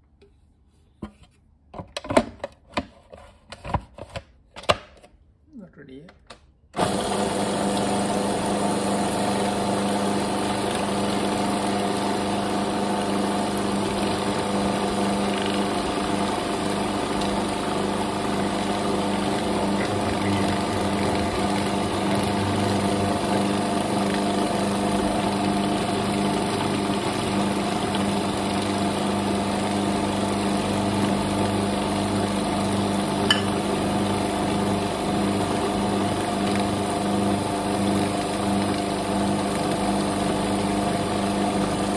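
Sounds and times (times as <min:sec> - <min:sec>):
food processor grinding paste: 0:06.8 - 0:41.9.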